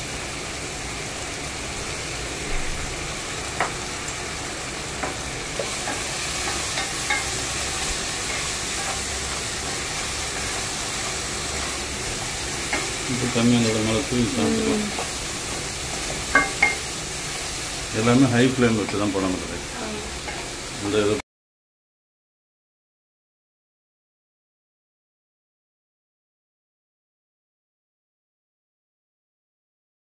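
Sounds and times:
vegetables sizzling in a pot: 0.0 - 21.2
spatula scraping a pan: 5.0 - 14.0.

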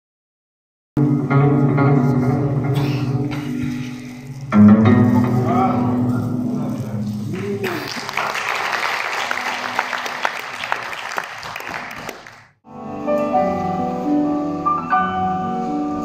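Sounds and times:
audience clapping: 7.3 - 12.6
instrumental keyboard music: 12.7 - 16.0.

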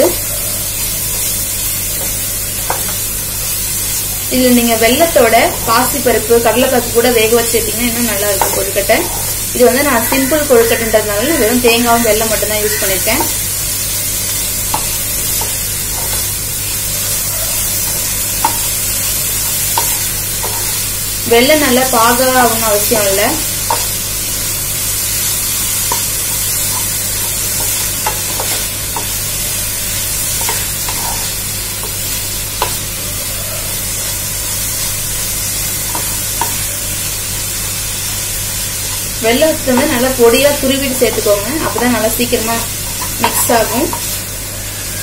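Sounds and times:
food sizzling in a pan: 0.0 - 45.0
spatula tapping pan: 2.0 - 3.0, 8.1 - 9.3, 14.6 - 16.4, 18.4 - 20.8, 23.6 - 24.0, 25.8 - 29.3, 30.3 - 32.9, 43.0 - 44.2
spatula stirring and scraping: 8.1 - 11.5, 14.0 - 21.9, 25.0 - 33.1.

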